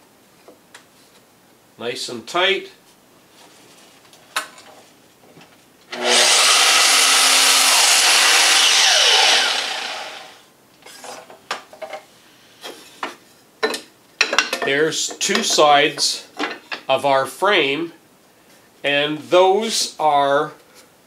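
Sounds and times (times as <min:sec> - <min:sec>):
mitre saw cutting wood: 0:05.9 - 0:10.4
saw blade spinning down: 0:05.9 - 0:10.4.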